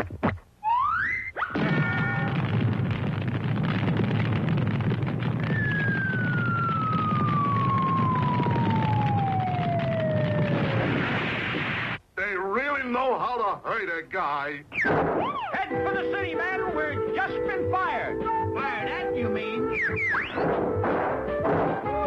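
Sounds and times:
falling pitch whistle: 0.6s - 2.1s, 5.5s - 10.8s, 19.6s - 20.4s
cartoon tree crash rumbling: 1.4s - 12.0s, 14.8s - 16.6s, 19.6s - 22.0s.

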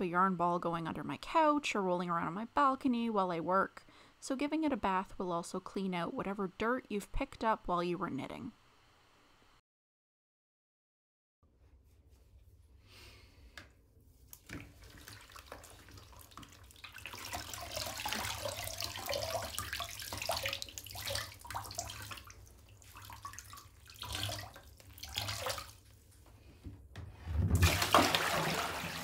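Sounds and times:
water splashing into bucket: 14.4s - 25.9s, 27.3s - 29.0s.

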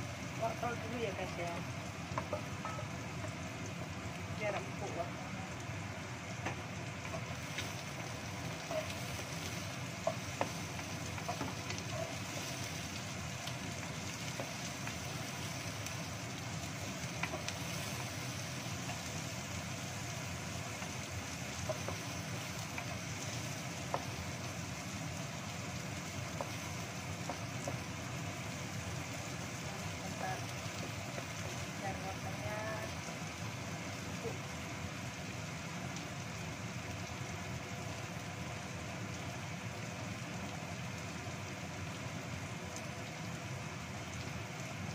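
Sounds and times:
vegetables sizzling in oil: 0.0s - 44.9s
wooden spatula scraping wok: 6.4s - 16.0s.

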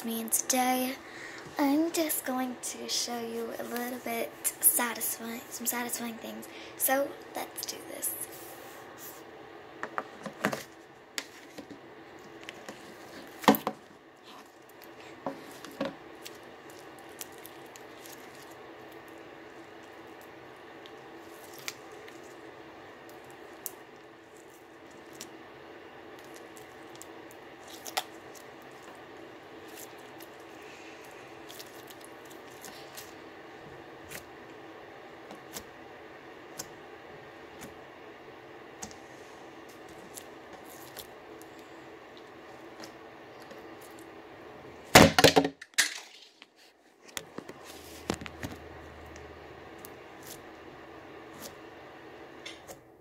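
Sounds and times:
steady low hum: 0.0s - 53.0s.

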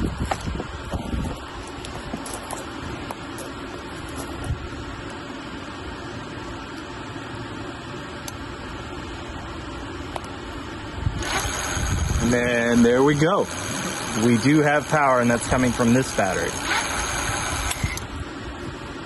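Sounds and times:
background hum and hiss: 0.0s - 19.0s.

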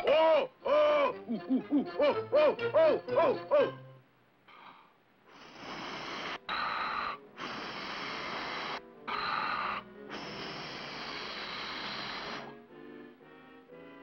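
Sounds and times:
orchestral music: 1.0s - 4.0s
cartoon air hissing puffs: 5.3s - 12.6s.

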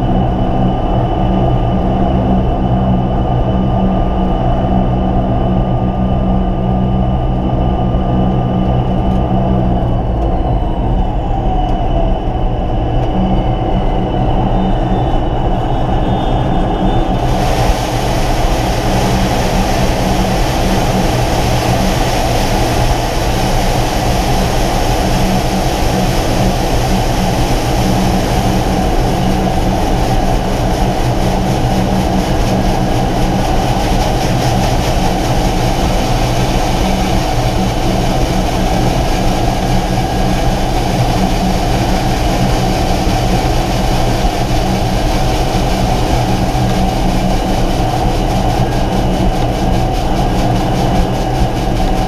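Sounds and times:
turboprop engine drone: 0.0s - 52.0s
constant hiss: 17.2s - 38.1s.

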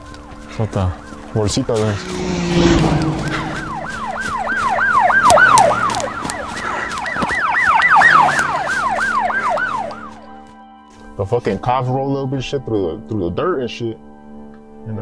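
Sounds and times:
police siren yelping: 0.8s - 10.2s
low rumble: 1.8s - 4.8s.

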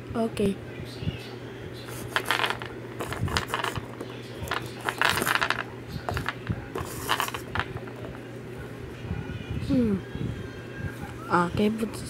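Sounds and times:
plastic cup scraping on tiles: 1.9s - 8.1s.

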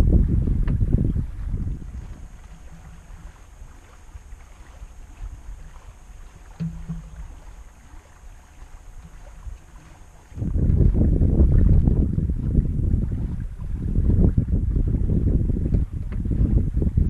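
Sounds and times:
wind and water along hull: 0.0s - 17.0s.

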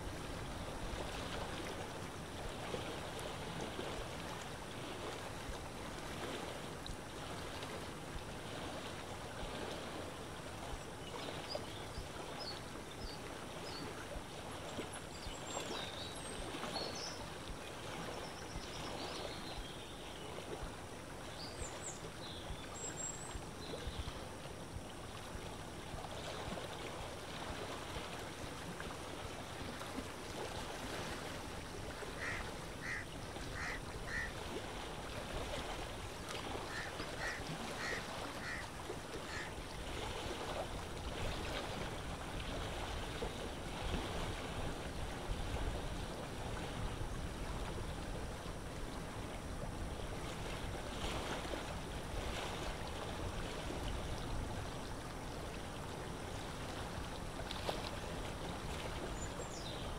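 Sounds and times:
water lapping: 0.0s - 59.9s
wind: 0.0s - 59.9s
birds chirping: 32.2s - 34.3s, 36.7s - 38.6s
short bird calls: 32.2s - 34.3s, 36.7s - 38.6s, 39.3s - 39.5s.

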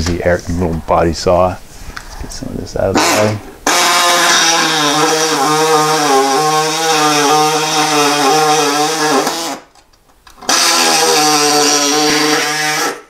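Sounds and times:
reciprocating saw cutting sheet metal: 3.0s - 9.7s, 10.4s - 13.0s.

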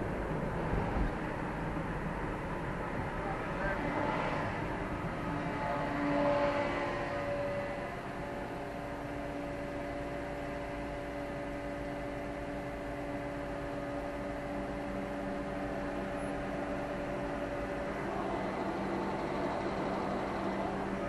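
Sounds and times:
faint steady whine: 0.0s - 21.0s
traffic idling hum: 7.5s - 21.0s.

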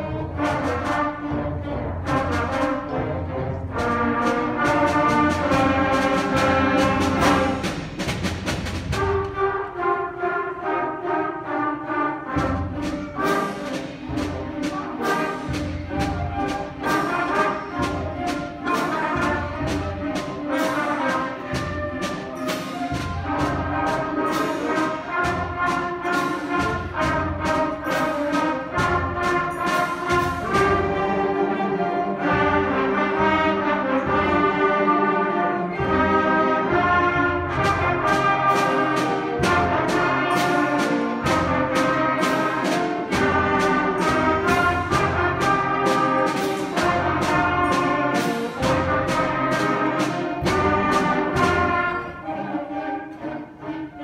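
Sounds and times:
brass and woodwind chords: 8.9s - 54.0s
percussion strokes: 12.3s - 54.0s.

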